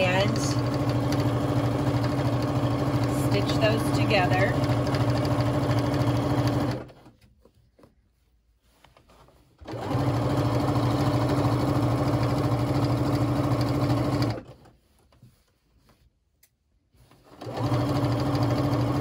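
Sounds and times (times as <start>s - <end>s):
sewing machine stitching: 0.0s - 7.2s, 9.6s - 14.8s, 17.3s - 19.0s.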